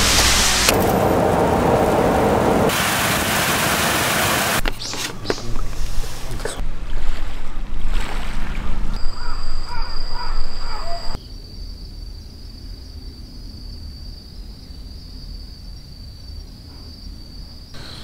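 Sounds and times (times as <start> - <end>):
bird cawing: 9.0 - 11.2
high insect trill: 9.0 - 18.0.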